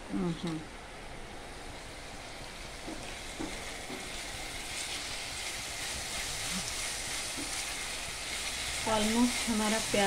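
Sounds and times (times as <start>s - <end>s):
onions sizzling in oil: 0.2s - 10.0s
spatula stirring: 2.8s - 10.0s.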